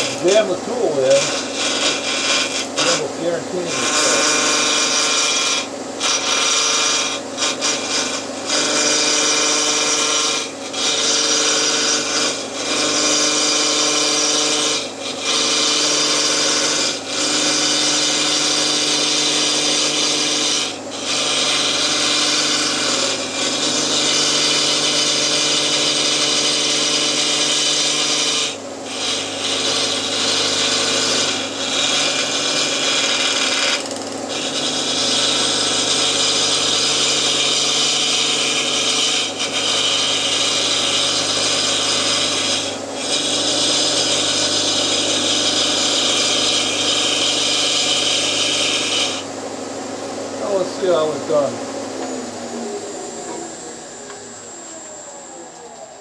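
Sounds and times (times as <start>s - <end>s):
turning tool scraping wood: 0.0s - 49.3s, 50.4s - 52.1s
lathe humming: 0.0s - 56.0s.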